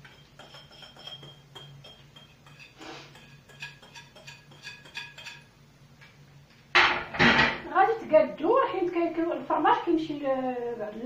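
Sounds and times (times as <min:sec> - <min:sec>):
utensils clinking against a dish: 0:00.0 - 0:05.5.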